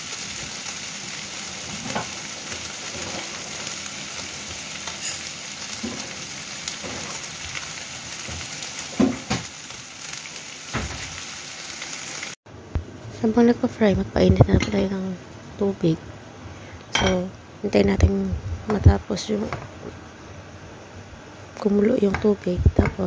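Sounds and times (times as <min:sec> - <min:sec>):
fish sizzling in oil: 0:00.0 - 0:12.4.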